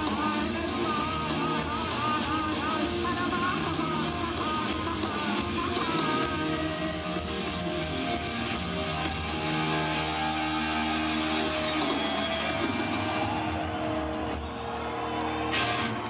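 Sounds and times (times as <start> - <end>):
distorted electric guitars: 0.0 - 16.0
drums: 0.0 - 16.0.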